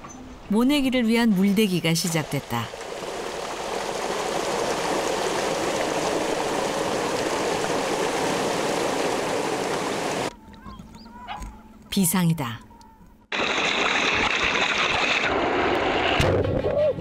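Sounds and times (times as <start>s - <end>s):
water gushing from pipe: 2.2s - 10.3s.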